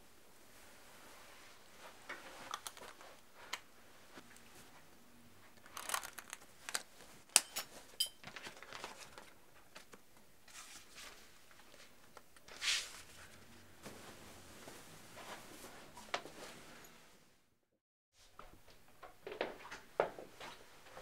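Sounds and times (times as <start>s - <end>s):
rustling and crinkling: 0.5s - 16.8s.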